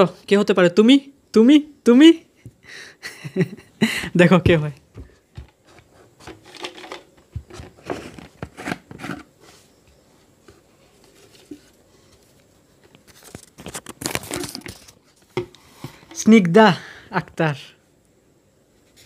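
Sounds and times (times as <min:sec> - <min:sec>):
paper crinkling: 0:10.9 - 0:15.3.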